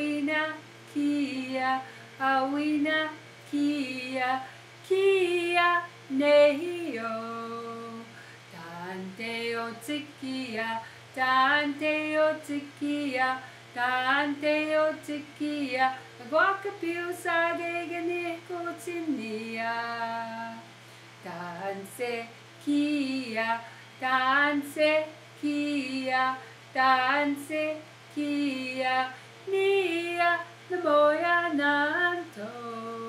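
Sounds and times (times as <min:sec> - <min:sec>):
woman singing unaccompanied: 0:00.0 - 0:33.0.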